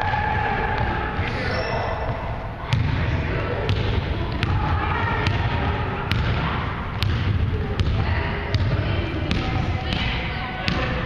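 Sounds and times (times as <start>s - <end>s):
murmur of voices: 0.0s - 11.0s
basketball bouncing on wooden floor: 5.2s - 10.1s.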